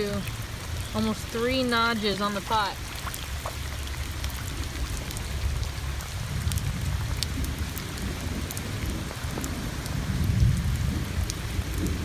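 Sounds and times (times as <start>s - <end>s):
heavy rain on standing water: 0.0s - 12.0s
low rumble: 3.4s - 12.0s.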